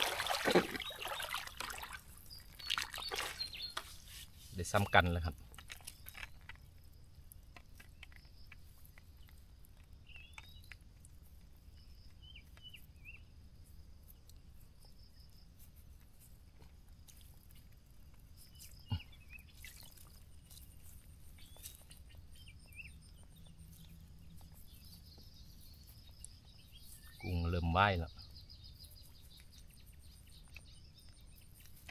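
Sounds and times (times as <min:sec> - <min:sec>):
net rustling: 0:00.0 - 0:02.0
bird chirps: 0:00.0 - 0:05.3, 0:10.0 - 0:10.7, 0:18.4 - 0:31.9.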